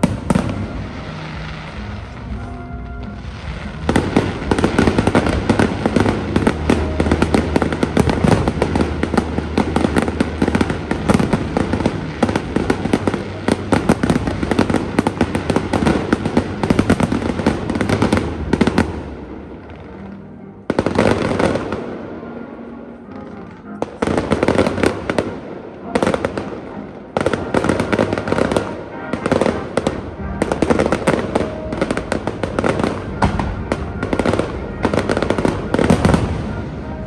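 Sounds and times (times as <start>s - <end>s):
fireworks bangs: 0.0s - 37.0s.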